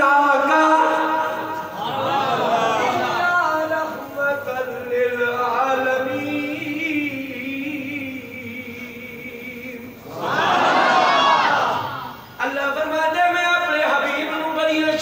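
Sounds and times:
man chanting: 0.0s - 1.7s, 2.5s - 10.0s, 12.4s - 15.0s.

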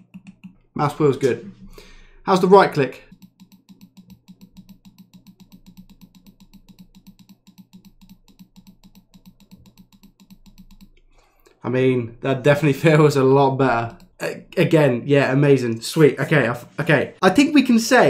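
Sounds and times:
mouse button clicking rapidly: 0.0s - 1.4s, 3.1s - 11.1s.

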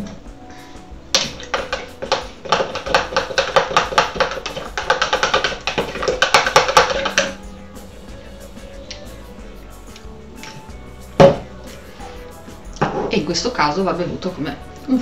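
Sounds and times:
spoon stirring in plastic cup: 1.2s - 7.4s.

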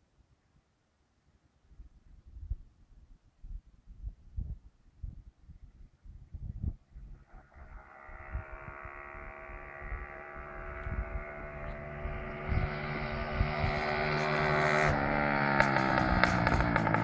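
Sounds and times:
motorcycle engine running: 7.2s - 17.0s.

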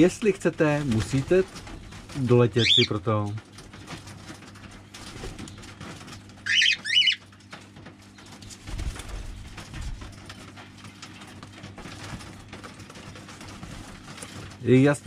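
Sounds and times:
faint birds chirping: 0.0s - 4.1s, 4.7s - 10.5s
cockatiel sharp high calls: 6.5s - 7.2s.

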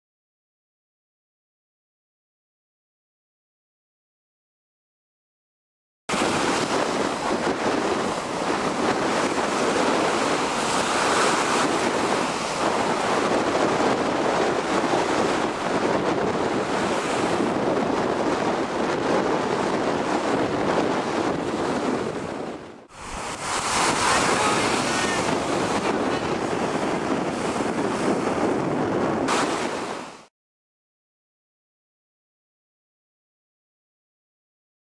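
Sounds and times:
breaking surf: 6.1s - 30.3s
strong wind: 6.1s - 30.3s
wind buffeting microphone: 6.1s - 30.3s.

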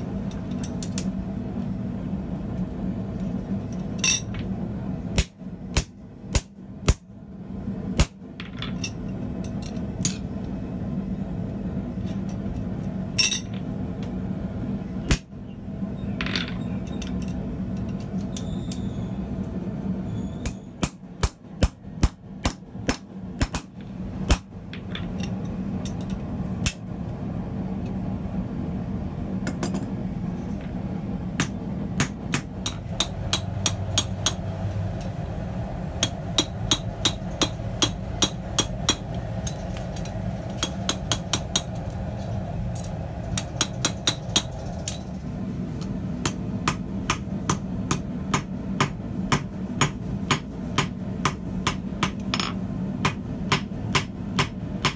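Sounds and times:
steady low hum: 0.0s - 54.9s
hammer striking punch on hot steel: 20.4s - 23.7s, 36.0s - 39.1s, 46.2s - 52.4s, 53.0s - 54.9s.

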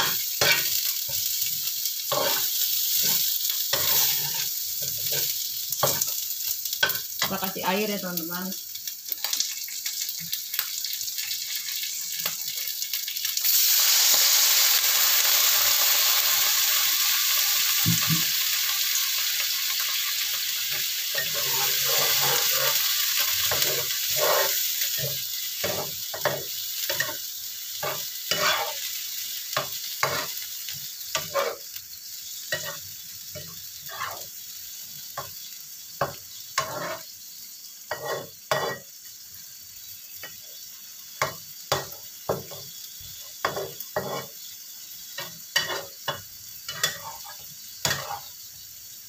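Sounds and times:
metal spatula scraping a pan: 0.0s - 1.2s, 2.1s - 6.2s, 20.7s - 27.2s, 27.8s - 28.8s, 30.0s - 30.4s, 31.1s - 31.7s, 32.5s - 32.8s, 33.8s - 34.3s, 36.0s - 37.1s, 37.9s - 38.9s, 43.4s - 44.4s, 45.2s - 48.4s
frying sizzle: 0.0s - 49.0s
water hissing in hot oil: 0.0s - 49.0s.

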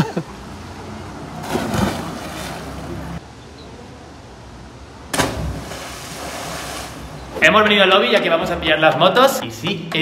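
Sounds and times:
wind: 0.0s - 10.0s
flowing water: 0.4s - 3.2s, 5.2s - 7.3s
person splashing into water: 1.4s - 2.6s.

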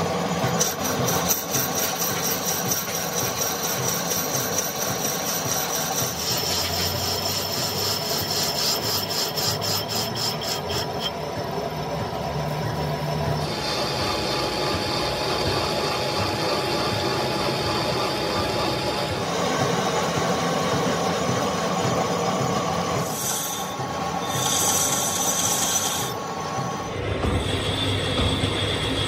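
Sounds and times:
metal lathe cutting metal: 0.0s - 29.0s
high-pitched screech: 0.6s - 11.2s, 23.0s - 28.7s.

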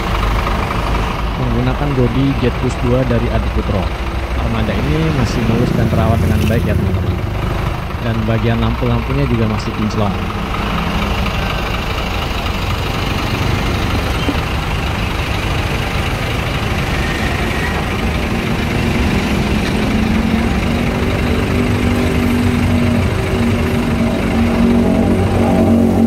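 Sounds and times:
diesel bus engine idling: 0.0s - 26.0s
steady humming tone: 16.4s - 26.0s.

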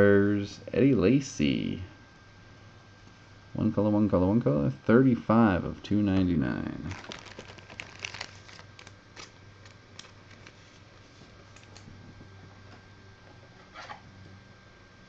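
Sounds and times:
low steady hum: 0.0s - 15.0s
trading cards and wrappers rustling: 6.7s - 11.9s.

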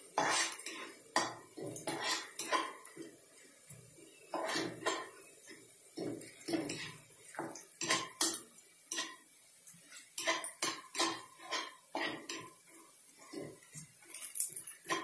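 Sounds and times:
plastic spatula scraping frying pan: 0.2s - 2.9s, 4.3s - 5.1s, 10.0s - 12.6s.

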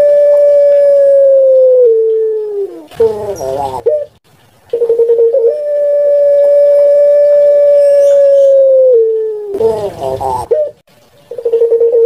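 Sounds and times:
dove cooing: 0.0s - 12.0s.

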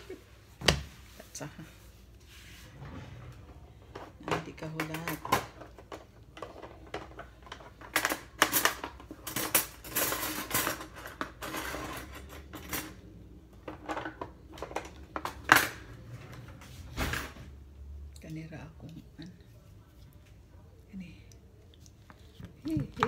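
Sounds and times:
kitchen utensils clattering: 3.0s - 17.5s.

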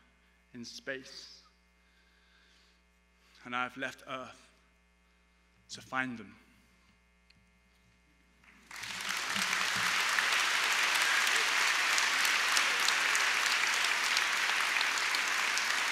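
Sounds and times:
audience applauding: 8.6s - 15.9s.

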